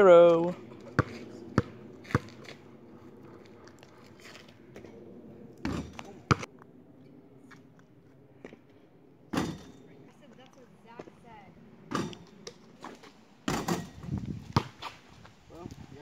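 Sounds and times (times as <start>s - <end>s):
ball bouncing on asphalt: 0.9s - 2.6s, 9.3s - 11.2s, 11.9s - 15.0s.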